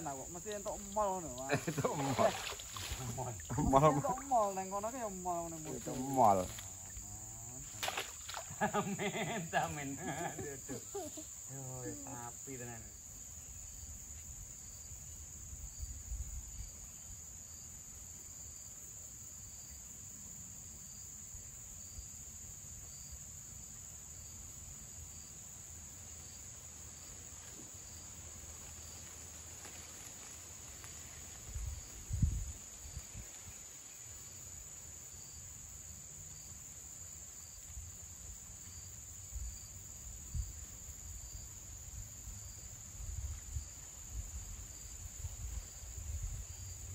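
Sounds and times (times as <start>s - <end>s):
high-pitched insect drone: 0.0s - 13.2s
faint insect chirp: 0.0s - 46.9s.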